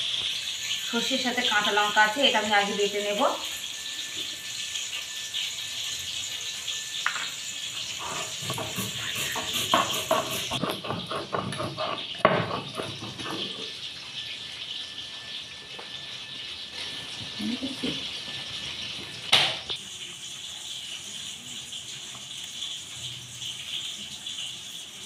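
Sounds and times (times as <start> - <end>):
stone scraping on grinding stone: 7.1 - 13.8.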